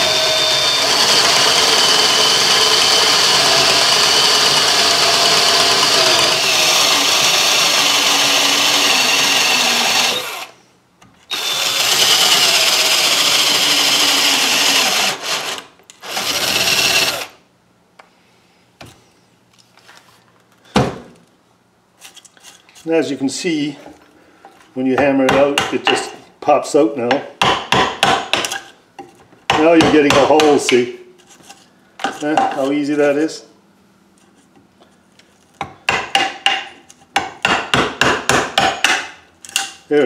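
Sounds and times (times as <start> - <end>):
electric drill boring into wood: 0.0 - 10.6, 11.3 - 17.4.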